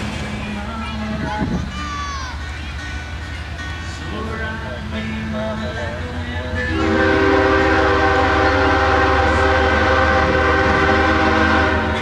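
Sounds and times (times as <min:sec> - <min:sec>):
locomotive air horn chord: 0:06.0 - 0:12.0.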